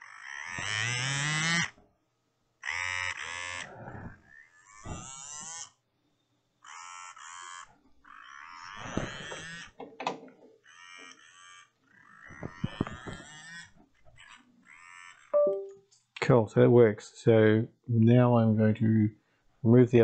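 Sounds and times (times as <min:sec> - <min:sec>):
small motor whining: 0:00.0 - 0:01.8, 0:02.6 - 0:05.8, 0:06.7 - 0:09.8, 0:10.6 - 0:15.3.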